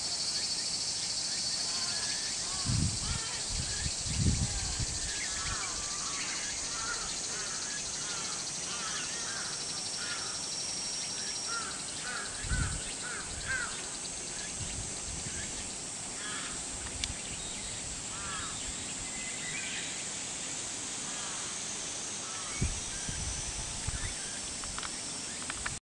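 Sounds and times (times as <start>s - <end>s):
steady high outdoor hiss: 0.0s - 25.8s
crows calling: 1.7s - 3.7s, 5.1s - 10.5s, 11.4s - 14.0s, 16.2s - 16.6s, 18.1s - 18.7s, 21.0s - 21.6s, 22.2s - 22.6s.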